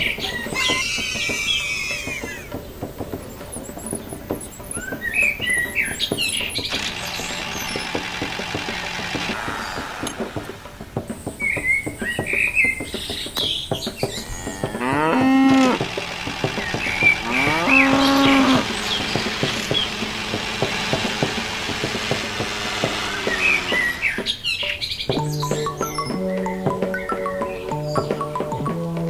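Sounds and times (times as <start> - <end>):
rapid irregular clicking: 0.0 - 26.3
small birds chirping: 0.0 - 29.0
cow mooing: 14.2 - 21.3.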